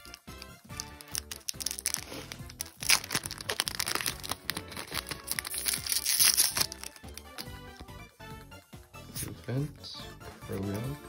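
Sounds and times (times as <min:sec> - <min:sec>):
foil wrapper crinkling and tearing: 0:00.0 - 0:07.5
cards being pulled out: 0:00.0 - 0:07.9
background music: 0:00.0 - 0:11.0.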